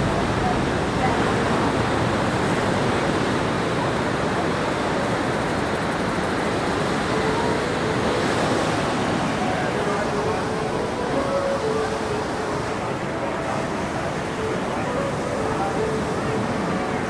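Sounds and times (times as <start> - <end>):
ocean surf breaking on beach: 0.0 - 17.0.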